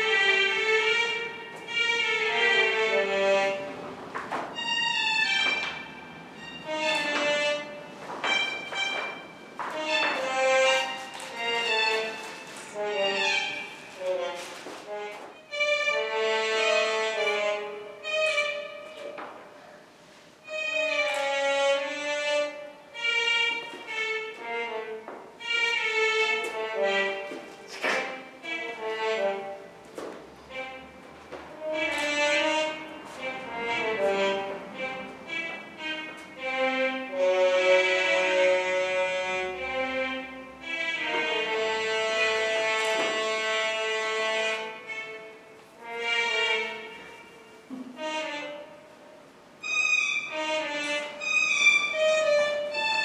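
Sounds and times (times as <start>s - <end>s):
slow bowed string music: 0.0s - 53.0s
violin playing slow held notes: 4.6s - 19.1s, 30.4s - 53.0s.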